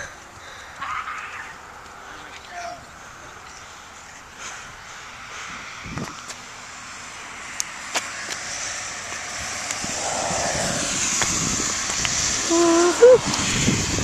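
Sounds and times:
vehicle engine: 0:00.0 - 0:14.0
tyre hiss on wet road: 0:03.1 - 0:14.0.

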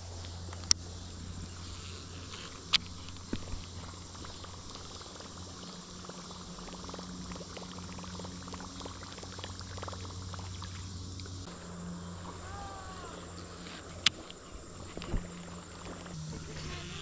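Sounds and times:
faint water gurgle: 0:03.2 - 0:16.8.

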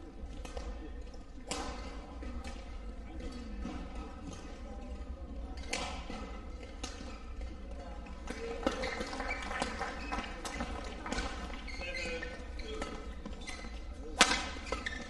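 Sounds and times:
rackets hitting shuttlecock: 0:05.6 - 0:07.6, 0:10.4 - 0:15.0.

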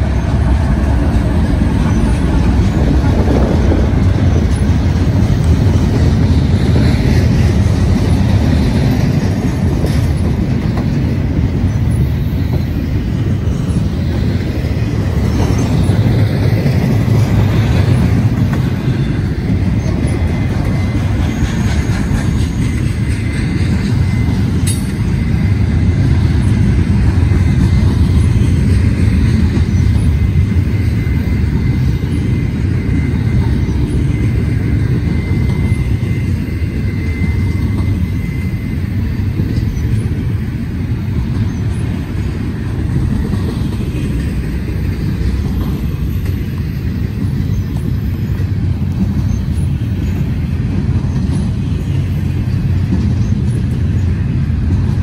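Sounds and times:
train wheels rumbling on rails: 0:00.0 - 0:55.0
faint high squeal: 0:28.2 - 0:40.2.

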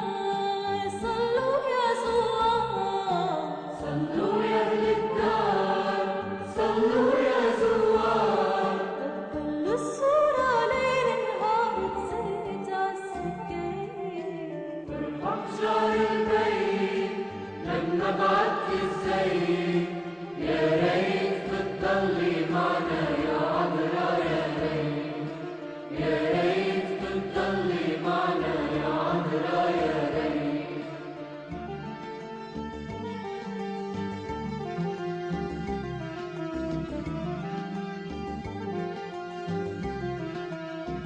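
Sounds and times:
voices chanting a hymn: 0:03.4 - 0:09.4, 0:15.0 - 0:31.2.

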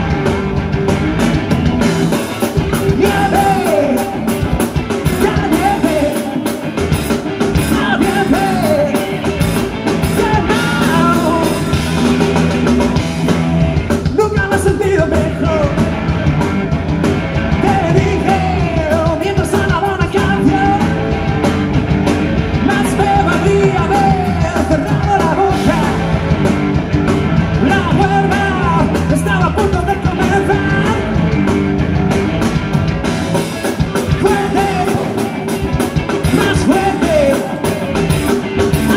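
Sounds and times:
rock band playing live: 0:00.0 - 0:38.9
person singing: 0:02.8 - 0:06.8, 0:07.5 - 0:09.4, 0:10.0 - 0:12.2, 0:22.5 - 0:26.2, 0:34.0 - 0:38.9.

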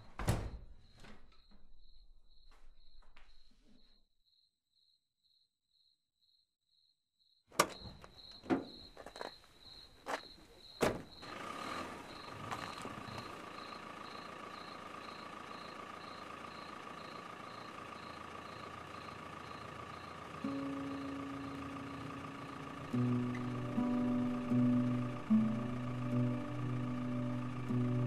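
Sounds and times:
crickets chirping: 0:00.4 - 0:28.0
car engine humming: 0:11.2 - 0:28.0.

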